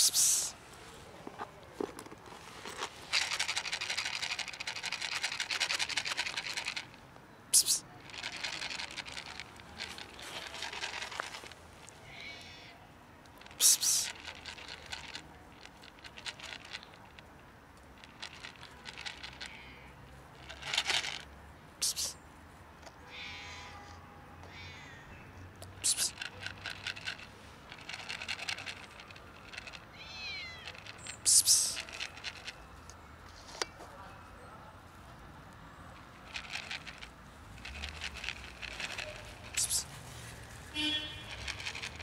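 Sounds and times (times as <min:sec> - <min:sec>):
cat meowing: 0:23.1 - 0:23.8, 0:29.9 - 0:30.8.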